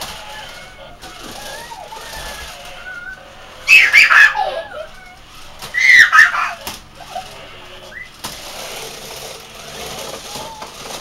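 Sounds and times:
boy squealing excitedly: 1.4s - 6.6s.

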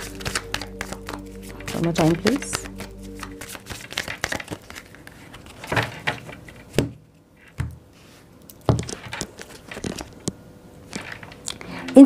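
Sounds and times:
cards being shuffled: 0.0s - 6.9s, 8.6s - 10.2s.

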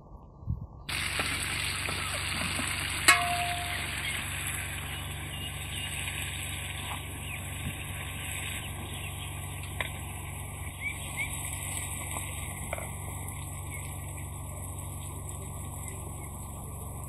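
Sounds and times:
vegetables sizzling in a pan: 0.9s - 9.1s
bird chirps: 8.5s - 11.4s.

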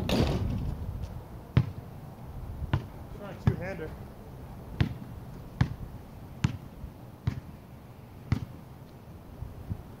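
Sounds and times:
basketball bouncing on asphalt: 0.0s - 1.9s, 2.7s - 3.8s, 4.7s - 7.6s, 8.2s - 8.7s
low wind rumble: 0.0s - 8.2s, 9.1s - 10.0s.

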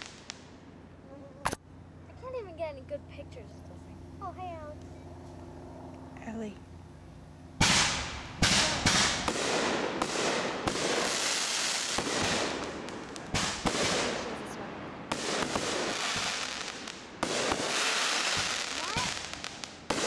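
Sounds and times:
fireworks bangs: 0.0s - 0.6s, 7.6s - 20.0s
fireworks crackling hiss: 0.0s - 1.6s, 7.6s - 20.0s.

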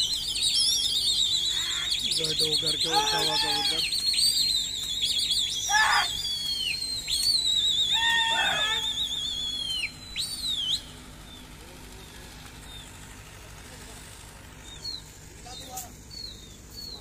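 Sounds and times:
person whistling trilled notes: 0.0s - 11.0s.

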